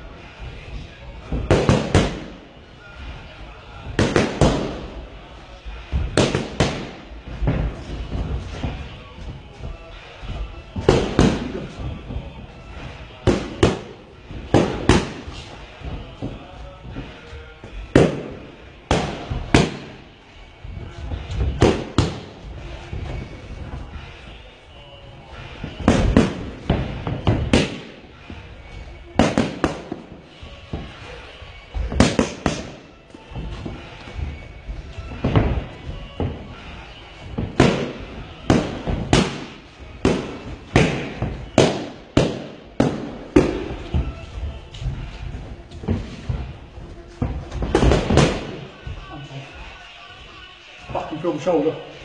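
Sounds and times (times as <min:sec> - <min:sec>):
boxing gloves slapping focus mitts: 0:01.3 - 0:02.4, 0:03.8 - 0:05.0, 0:06.0 - 0:12.2, 0:12.9 - 0:17.1, 0:17.7 - 0:20.1, 0:21.1 - 0:23.4, 0:25.4 - 0:31.2, 0:31.8 - 0:44.2, 0:47.2 - 0:48.7.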